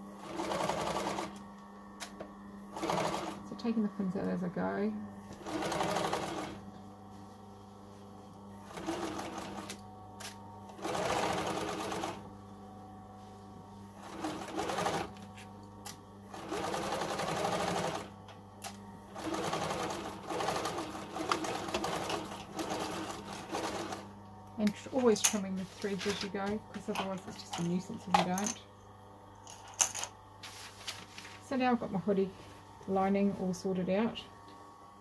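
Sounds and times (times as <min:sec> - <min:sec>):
sewing machine stitching: 0:05.4 - 0:06.6, 0:10.8 - 0:12.2, 0:14.0 - 0:15.1, 0:16.3 - 0:18.1, 0:19.2 - 0:24.0.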